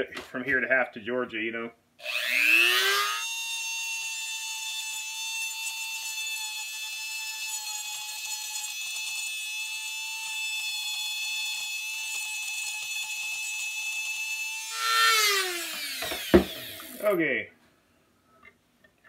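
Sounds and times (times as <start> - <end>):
rotary tool whining: 2.0 - 17.2.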